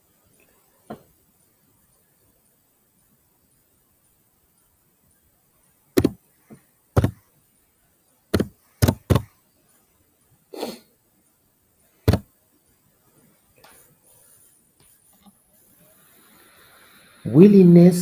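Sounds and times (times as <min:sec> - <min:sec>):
keyboard keys pressed: 0:06.0 - 0:06.2, 0:07.0 - 0:07.2, 0:08.3 - 0:09.3
soft rustle: 0:12.6 - 0:16.2.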